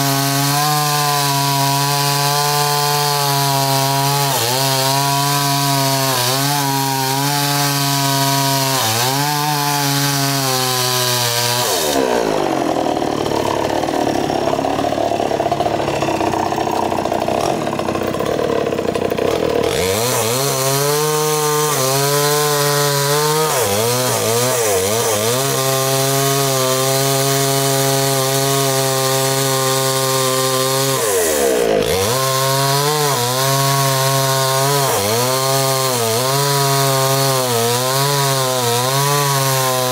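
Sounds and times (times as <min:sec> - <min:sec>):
chainsaw cutting wood: 0:00.0 - 0:39.9.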